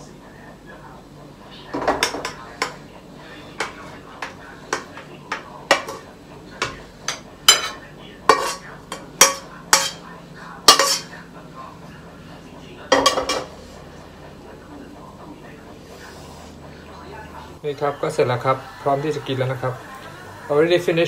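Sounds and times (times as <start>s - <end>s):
metal spatula scraping pans: 2.0s - 10.0s, 10.6s - 11.2s.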